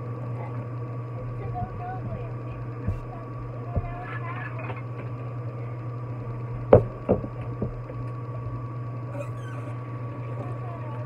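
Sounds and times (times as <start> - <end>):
steady low hum: 0.0 - 11.0
kitchenware knocking at a sink: 6.7 - 7.9.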